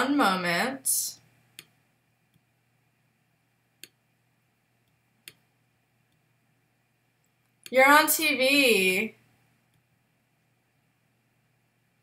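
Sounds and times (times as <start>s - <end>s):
computer mouse clicks: 1.5s - 2.5s, 3.8s - 4.0s, 4.8s - 5.5s.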